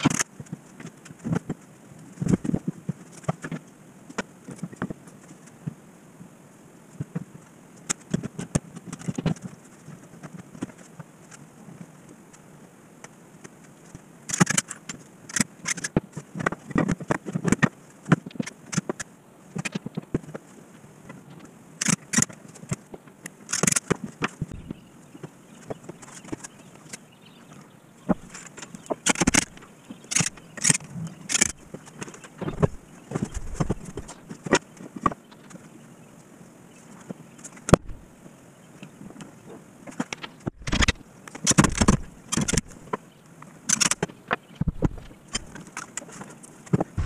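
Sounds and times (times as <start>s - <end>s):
wood parts knocking and clicking: 28.1s - 35.2s, 39.9s - 42.8s.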